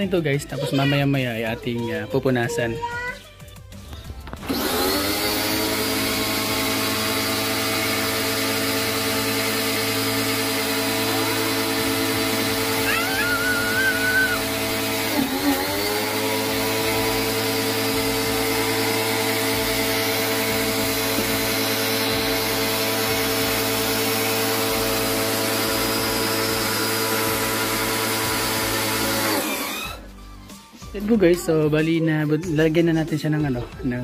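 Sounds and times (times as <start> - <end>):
pressure washer motor humming: 4.2 - 30.2.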